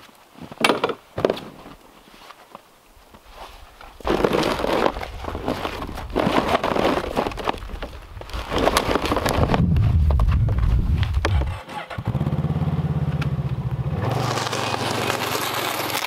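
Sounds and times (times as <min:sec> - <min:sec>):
strap rustling and scraping: 0:00.0 - 0:11.6, 0:14.1 - 0:16.0
snow crunching: 0:01.9 - 0:11.6, 0:14.0 - 0:16.0
low rumble: 0:09.2 - 0:13.9.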